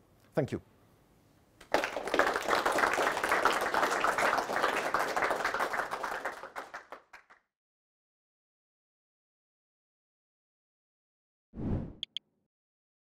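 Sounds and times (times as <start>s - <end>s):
audience applauding: 1.6s - 7.4s.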